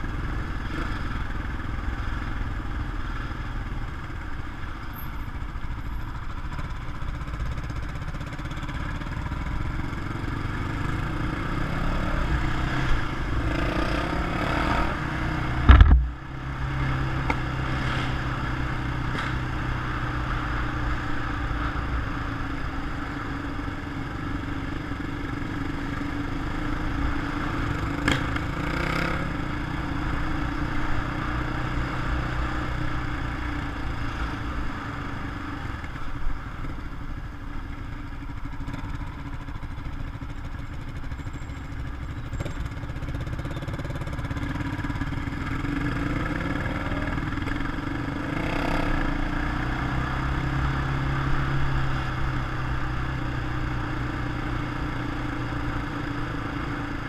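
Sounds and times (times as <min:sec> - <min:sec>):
quad bike engine: 0:00.0 - 0:57.0
wind and road noise: 0:00.0 - 0:57.0.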